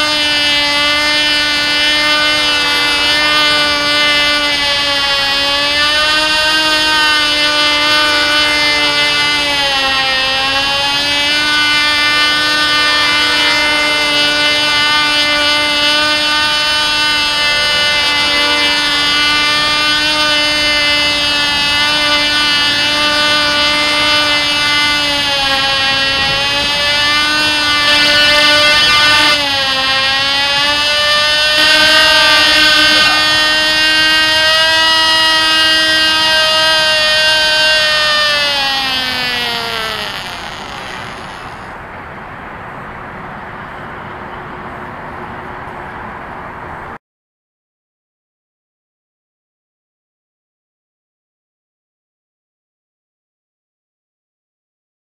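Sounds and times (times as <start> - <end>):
model engine high-pitched buzz: 0.0 - 41.9.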